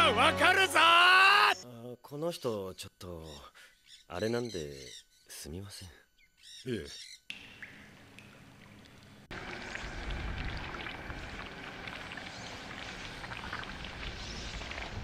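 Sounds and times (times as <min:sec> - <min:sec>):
pouring water: 0:07.3 - 0:15.0.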